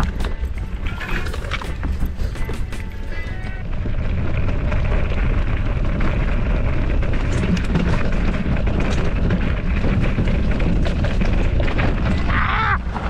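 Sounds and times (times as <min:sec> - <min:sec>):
bike clicks and rattles: 0:00.0 - 0:13.0
tyres crunching on gravel: 0:00.0 - 0:13.0.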